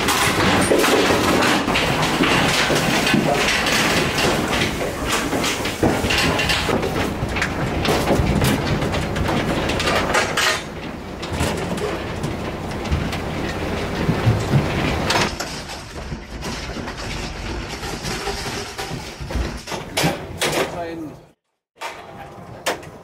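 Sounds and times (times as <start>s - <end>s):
metal livestock pens rattling: 0.0s - 21.2s.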